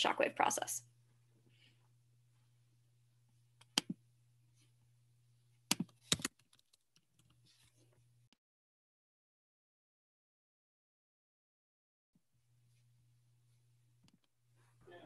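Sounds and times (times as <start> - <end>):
faint low hum: 0.0 - 6.2
computer keyboard keystrokes: 5.7 - 7.4.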